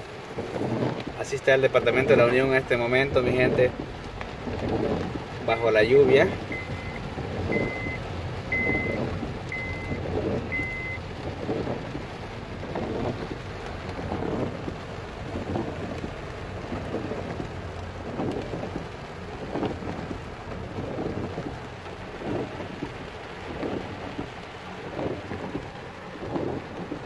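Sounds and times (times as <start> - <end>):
heavy rain on a car: 0.0 - 27.0
short high beeps: 8.6 - 10.0.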